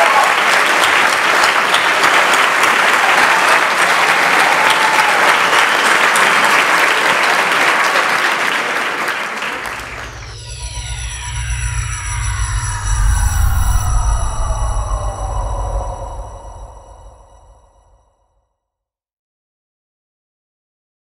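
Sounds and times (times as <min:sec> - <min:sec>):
audience applauding: 0:00.0 - 0:11.6
tone with falling pitch sweeps: 0:09.6 - 0:18.0.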